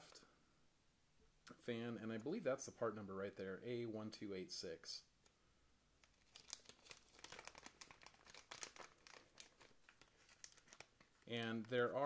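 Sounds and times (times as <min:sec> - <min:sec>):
plastic zip bag crinkling: 0:06.0 - 0:12.0.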